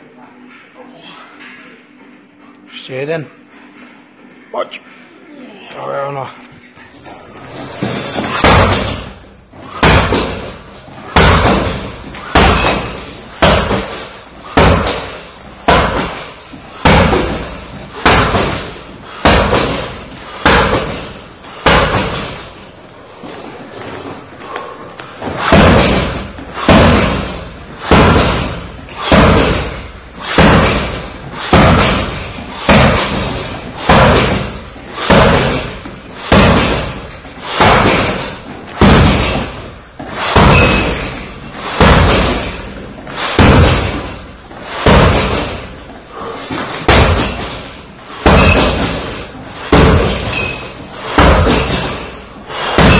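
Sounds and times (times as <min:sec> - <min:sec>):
kicks thudding into punching bag: 0:07.8 - 0:22.5, 0:25.2 - 0:45.8, 0:46.5 - 0:52.9.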